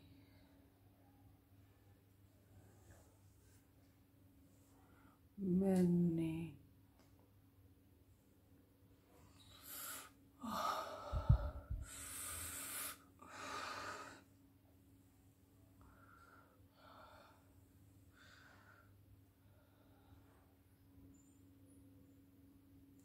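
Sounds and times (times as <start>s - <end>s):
woman breathing heavily: 9.4s - 14.4s, 15.8s - 20.3s.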